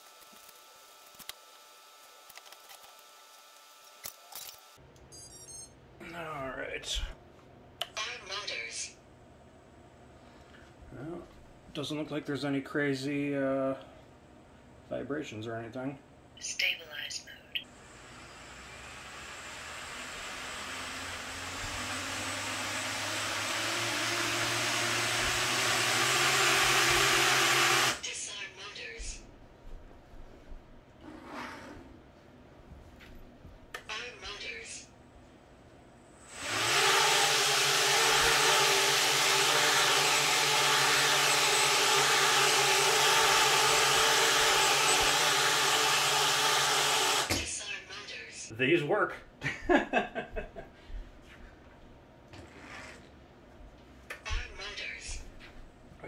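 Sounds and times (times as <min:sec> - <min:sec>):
drone motors whirring: 0:17.9 - 0:28.0.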